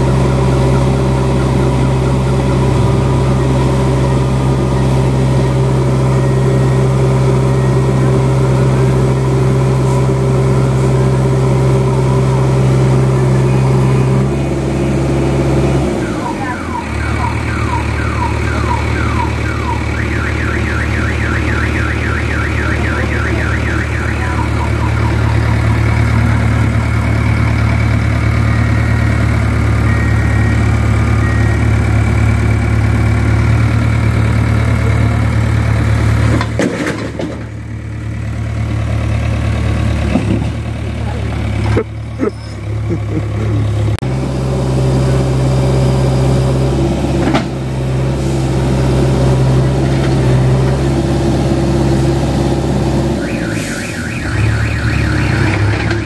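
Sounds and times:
electronic alarm chirping: 0.0s - 9.3s, 16.0s - 27.6s, 28.4s - 32.4s, 53.2s - 56.0s
diesel engine running under load: 0.0s - 56.0s.

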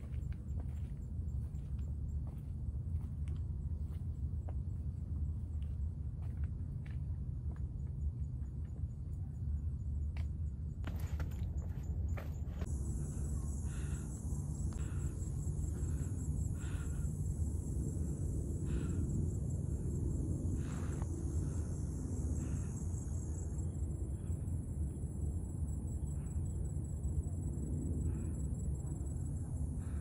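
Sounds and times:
low rumble: 0.0s - 30.0s
high-pitched insect chorus: 12.6s - 30.0s.

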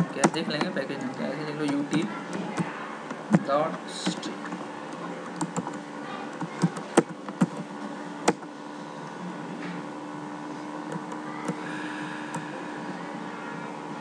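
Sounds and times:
steady hum: 0.0s - 14.0s
keyboard key clicks: 5.4s - 7.6s.

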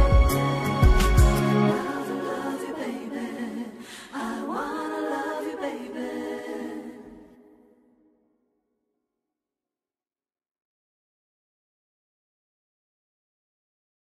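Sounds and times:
drum beat: 0.0s - 1.4s
layered singing: 0.0s - 7.7s.

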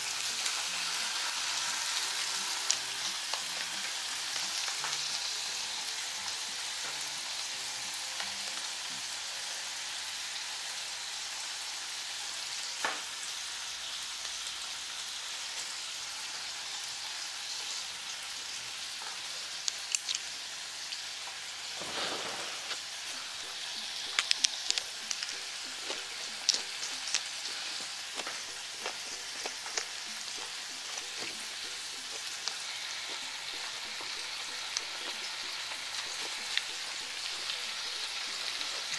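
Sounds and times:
meat sizzling on grill pan: 0.0s - 38.9s.

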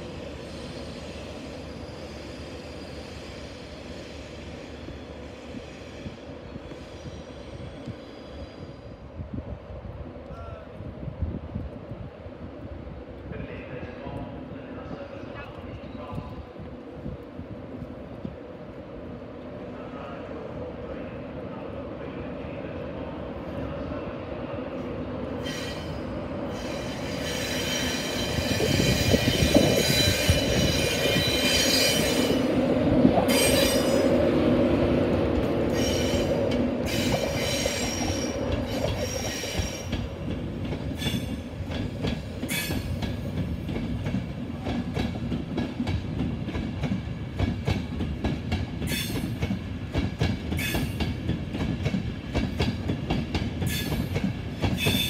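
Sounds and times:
train rumbling past: 0.0s - 55.0s
high wheel squeal: 25.4s - 32.5s, 35.7s - 40.0s.

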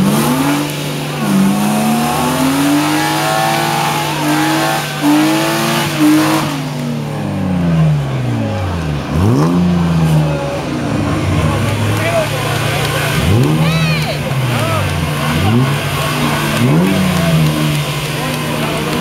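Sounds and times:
car engine revving: 0.0s - 19.0s
spinning tyres hissing: 0.0s - 19.0s.

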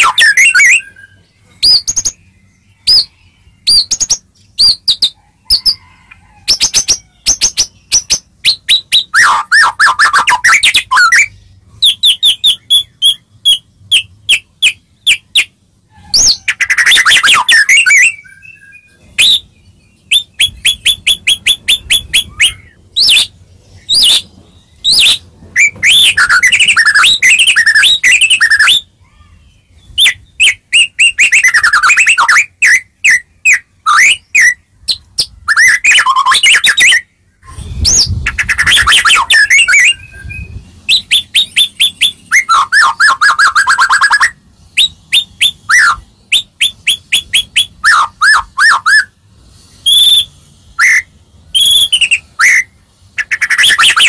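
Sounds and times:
bird singing varied song: 0.0s - 54.0s.

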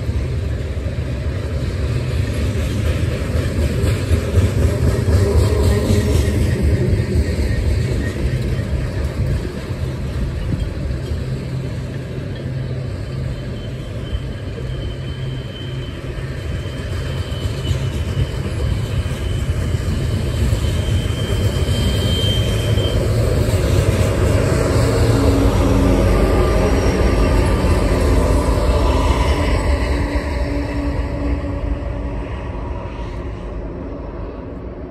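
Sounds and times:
diesel locomotive: 0.0s - 34.9s
freight train rumbling and clattering: 0.0s - 34.9s
high-pitched whine: 4.5s - 34.9s.

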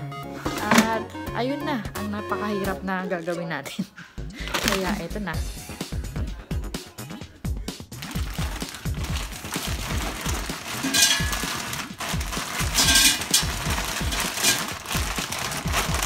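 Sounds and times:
background music: 0.0s - 16.0s
plastic bag crinkling: 4.5s - 5.0s, 7.9s - 16.0s
fries clattering into basket: 8.0s - 16.0s.

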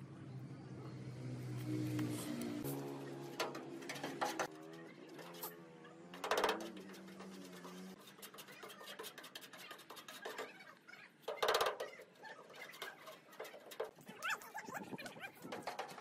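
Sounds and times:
putty knife scraping filler on metal: 6.2s - 14.0s.

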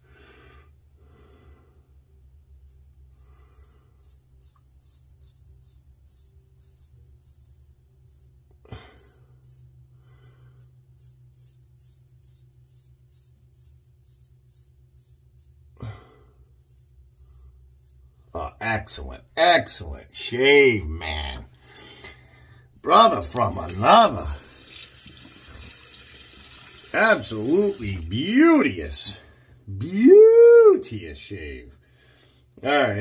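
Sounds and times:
razor scraping stubble: 2.5s - 9.8s, 10.5s - 15.8s, 16.4s - 18.2s.

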